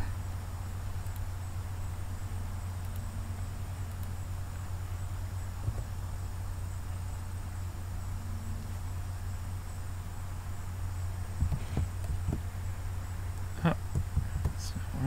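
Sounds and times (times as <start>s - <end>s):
low electrical hum: 0.0s - 15.0s
pulsing high-pitched whine: 0.0s - 15.0s
soft clicks: 1.0s - 1.3s, 2.8s - 3.1s, 3.8s - 4.2s.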